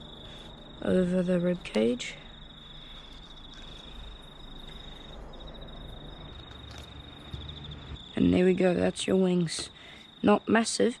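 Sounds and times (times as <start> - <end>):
insect trilling: 0.0 - 10.8
faint outdoor background noise: 0.0 - 11.0.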